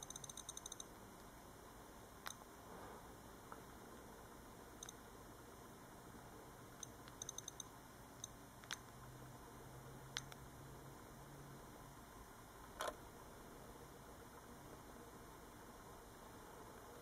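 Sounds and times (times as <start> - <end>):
click wheel ticking: 0.0 - 0.9, 6.8 - 8.8.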